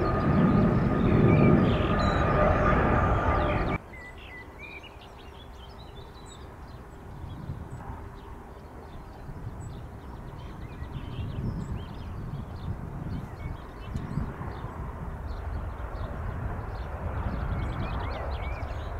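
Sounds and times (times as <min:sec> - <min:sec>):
faint low jet rumble: 0:00.0 - 0:03.8
jet engines at takeoff: 0:00.0 - 0:03.8, 0:05.3 - 0:18.9
birds chirping: 0:00.0 - 0:18.9.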